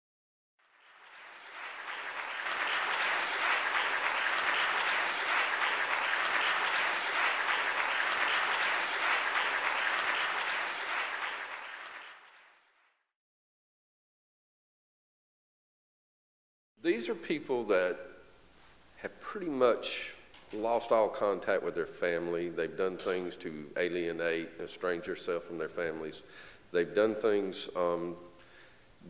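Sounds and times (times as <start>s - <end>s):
audience applauding: 0.6s - 12.8s.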